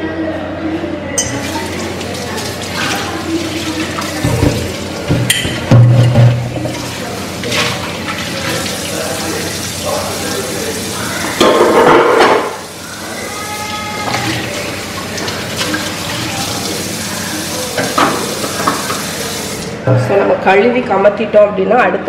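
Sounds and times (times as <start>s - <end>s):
tap running water into jar: 1.2s - 12.7s, 17.6s - 19.7s.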